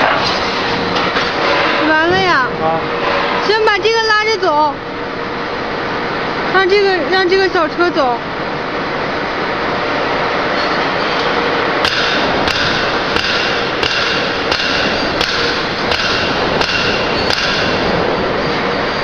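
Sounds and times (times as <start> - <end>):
welding machine running: 0.0 - 19.0
sharp metallic clacks: 11.8 - 17.9.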